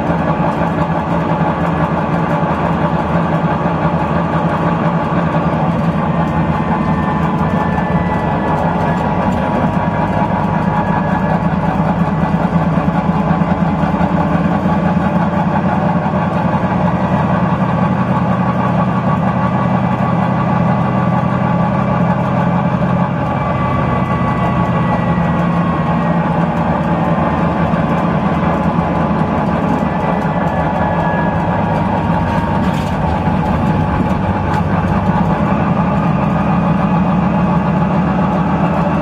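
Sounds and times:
bus diesel engine running: 0.0 - 39.0
road noise: 0.0 - 39.0.

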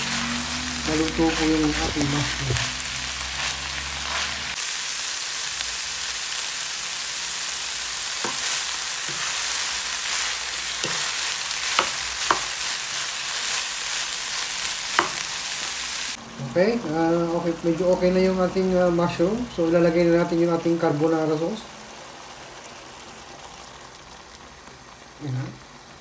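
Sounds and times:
food sizzling in frying pan: 0.0 - 26.0.

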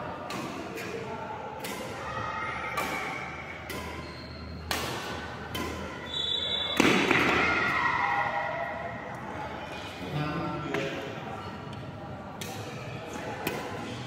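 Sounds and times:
racket striking shuttlecock: 0.2 - 1.0, 1.6 - 2.0, 2.8 - 4.0, 4.6 - 5.9, 6.8 - 7.4, 12.4 - 12.8, 13.4 - 13.8.

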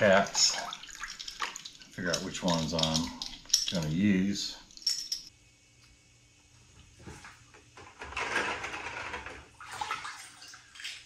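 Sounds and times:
hand sloshing water in bucket: 9.6 - 11.0.

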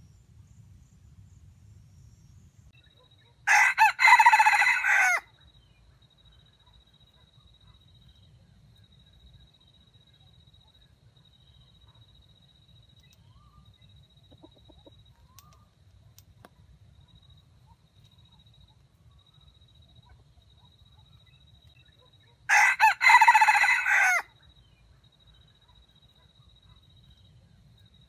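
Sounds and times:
rooster crowing: 3.4 - 5.3, 22.5 - 24.3.

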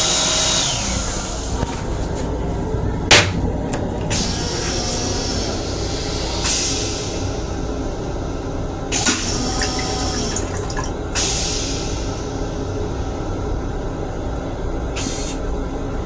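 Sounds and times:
rinse water hissing into bowl: 9.0 - 11.6.

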